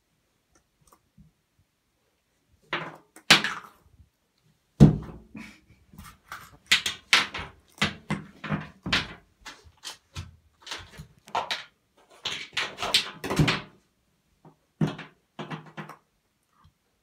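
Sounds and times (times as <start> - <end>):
plastic bottles knocking: 6.5 - 9.3, 10.2 - 13.8, 14.5 - 16.0.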